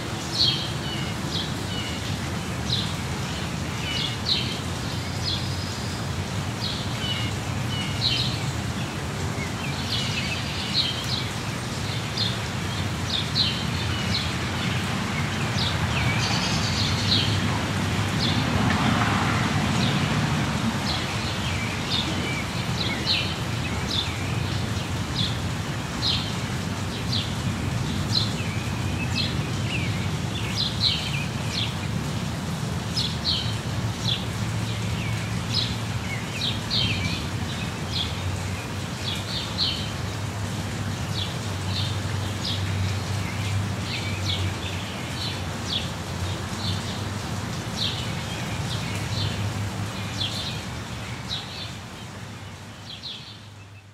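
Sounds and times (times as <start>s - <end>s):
steady rain falling: 0.0s - 53.9s
small birds chirping: 20.8s - 53.9s.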